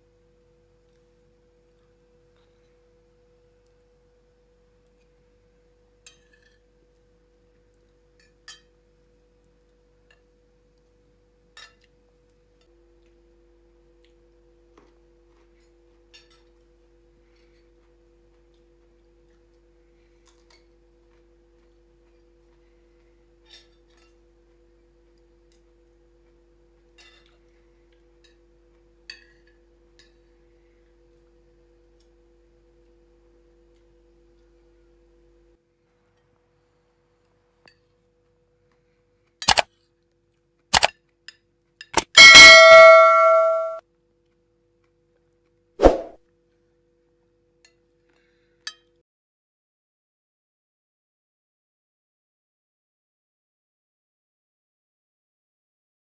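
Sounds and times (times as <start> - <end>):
cutlery clinking on china plates: 6.0 - 6.6, 8.2 - 8.8, 42.0 - 43.8
mouse-click sound effects: 39.4 - 39.6.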